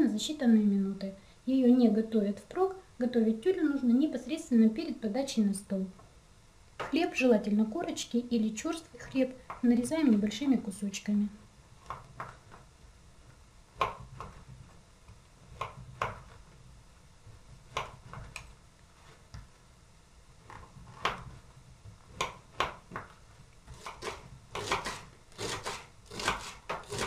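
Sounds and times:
knife cutting bread: 11.8 - 16.7, 17.3 - 19.4, 20.4 - 27.0.

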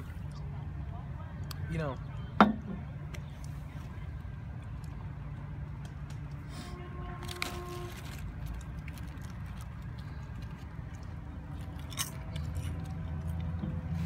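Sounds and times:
low rumble of street traffic: 0.0 - 14.0
vehicle engine: 0.0 - 14.0
person chewing popcorn: 7.2 - 14.0.

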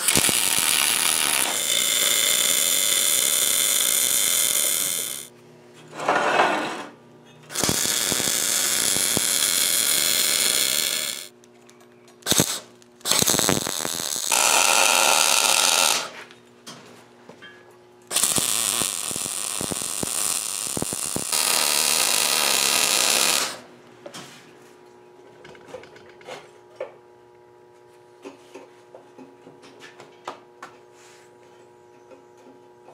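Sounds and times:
welder arc buzzing: 0.0 - 5.3, 7.5 - 11.4, 12.2 - 16.3, 18.1 - 23.7.

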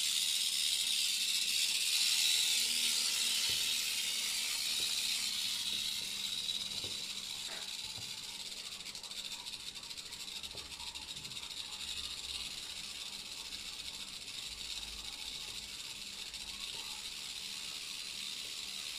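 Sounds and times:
rattlesnake rattling: 0.0 - 18.9.

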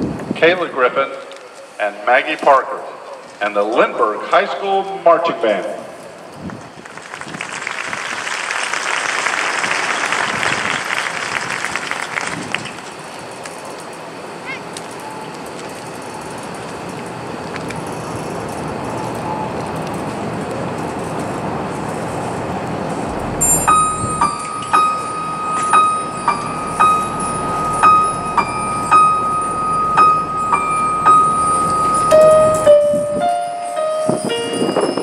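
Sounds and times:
stadium crowd noise: 0.0 - 13.1
applause: 6.4 - 13.0
high bell-like note repeated: 23.1 - 35.0.

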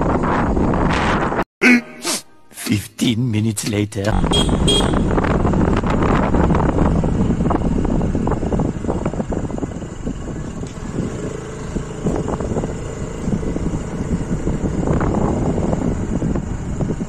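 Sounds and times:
wind buffeting microphone: 0.0 - 1.4, 4.1 - 17.0
scooter engine running: 4.2 - 17.0.

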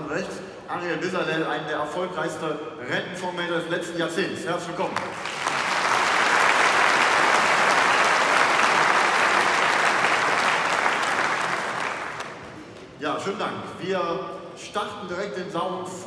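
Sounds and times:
audience clapping: 4.9 - 12.9.

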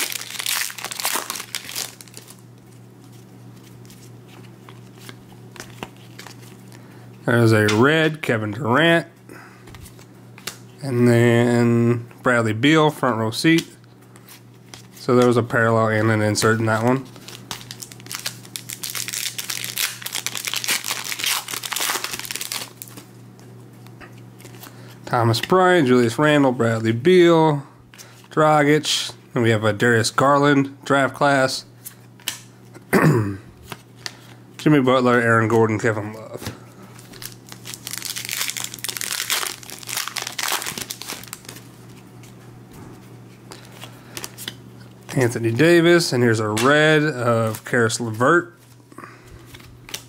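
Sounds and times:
foil wrapper crinkling and tearing: 0.0 - 2.5, 16.8 - 23.1, 37.0 - 41.9
handling cards: 0.0 - 8.7, 9.6 - 10.8, 13.0 - 25.6, 31.8 - 32.8, 33.6 - 50.0.

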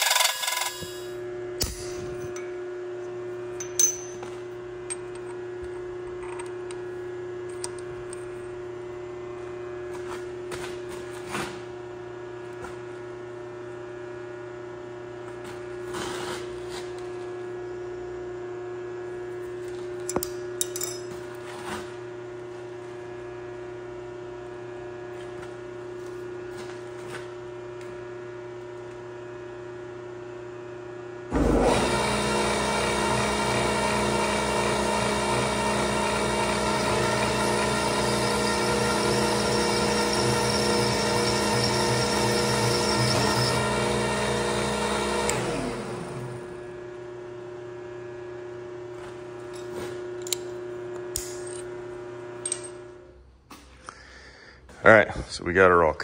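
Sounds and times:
boring machine running: 0.0 - 2.5, 31.3 - 46.8.

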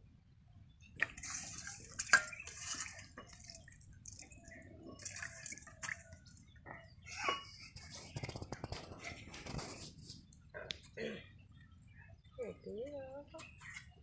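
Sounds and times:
water splashing and dripping: 1.0 - 6.7.

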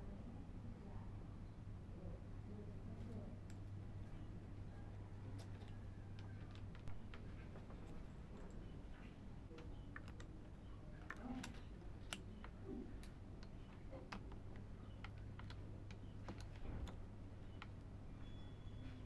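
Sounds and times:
faint low hum: 0.0 - 19.0.

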